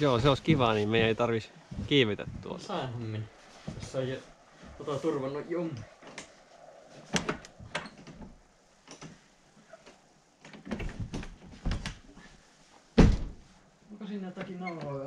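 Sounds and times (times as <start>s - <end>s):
door knocking against frame: 13.0s - 13.4s.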